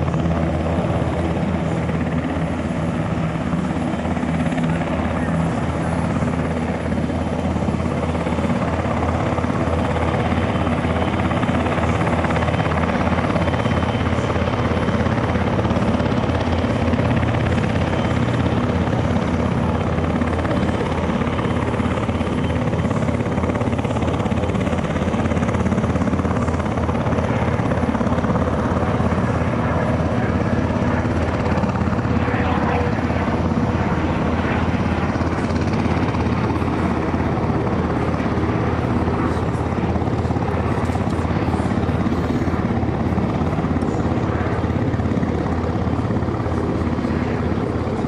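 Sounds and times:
helicopter rotor blade chop: 0.0 - 48.0.

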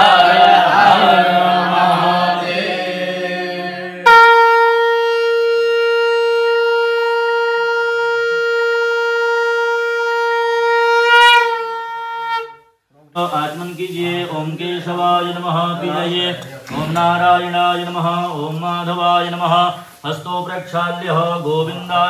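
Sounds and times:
group of voices chanting: 0.0 - 4.0, 15.4 - 17.7
conch shell horn note: 4.0 - 12.8.

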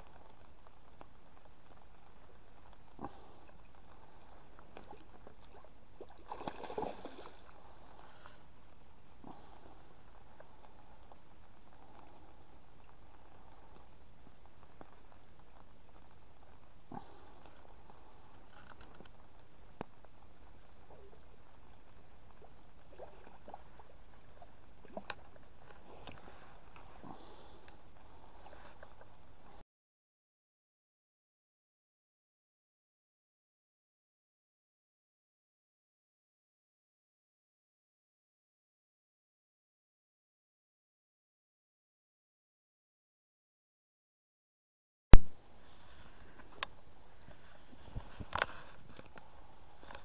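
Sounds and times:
fish splashing at water surface: 4.8 - 7.9.

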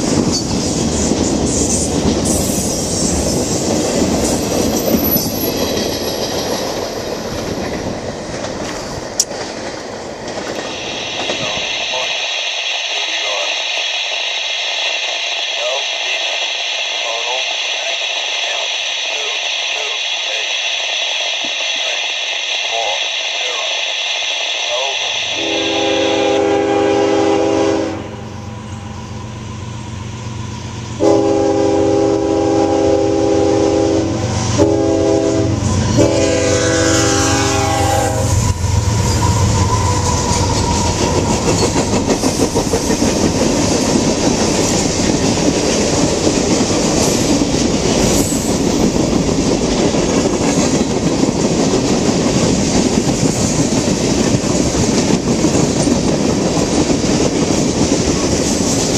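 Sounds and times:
locomotive horn blasts: 25.3 - 28.4, 31.0 - 38.4.

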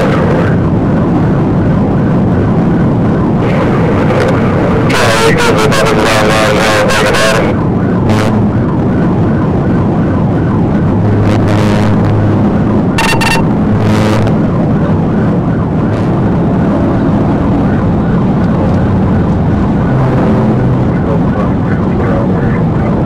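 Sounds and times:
engine and road noise hum: 0.0 - 23.0
brief beep: 13.0 - 13.5.

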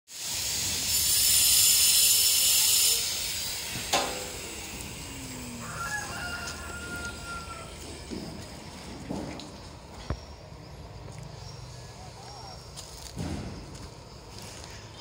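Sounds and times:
loud high hiss: 0.1 - 8.1
rooster crowing: 4.9 - 8.4.

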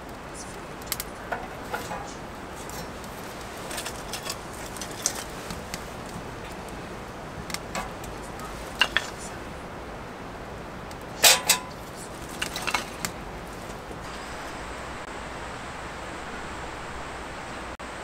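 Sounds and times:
steady hiss: 0.0 - 18.0
small hard objects clicking: 7.4 - 9.4, 11.7 - 13.8.

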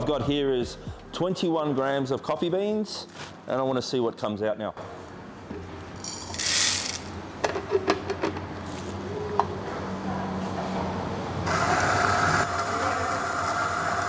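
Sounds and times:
coffee grinder motor whining: 11.5 - 14.0.

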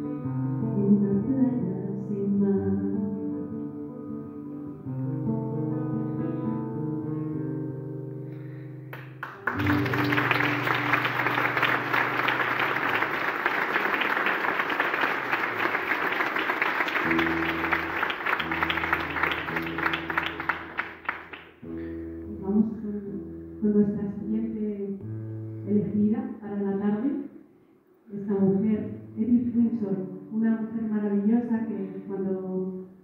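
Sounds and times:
song on guitar with backing music: 0.0 - 13.3, 16.8 - 25.9
audience applause: 9.0 - 21.6
low sustained music notes: 17.0 - 26.8.

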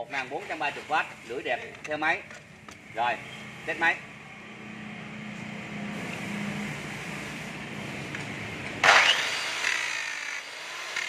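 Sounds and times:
circular saw motor whine: 8.8 - 11.0.

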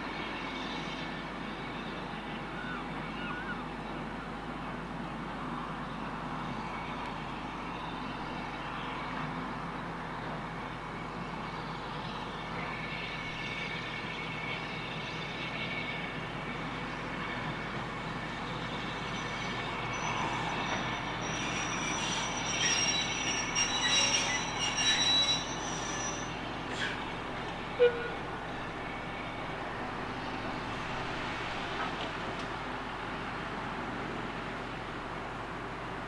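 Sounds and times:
locomotive diesel engine droning: 0.0 - 36.0
thin high squeal: 19.0 - 29.4.

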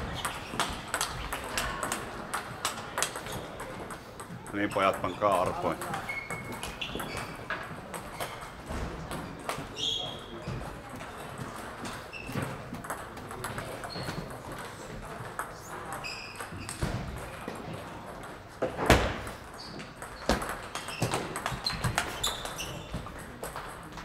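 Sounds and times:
table tennis balls clicking: 0.0 - 24.0
short high squeaks: 20.8 - 22.9.

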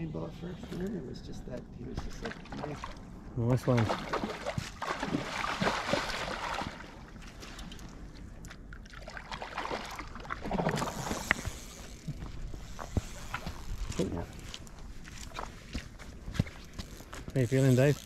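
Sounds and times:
water sloshing in landing net: 3.6 - 7.9, 8.7 - 11.5
fish splashing at water surface: 3.7 - 7.6, 8.9 - 11.9.

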